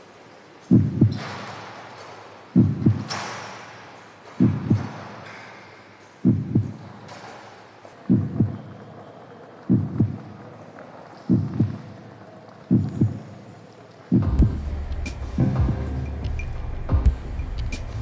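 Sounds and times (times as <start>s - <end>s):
heartbeat-like double thump: 0.7s - 1.2s, 2.6s - 3.1s, 6.2s - 6.7s, 8.1s - 8.6s, 9.7s - 10.2s, 11.3s - 11.8s, 14.1s - 18.0s.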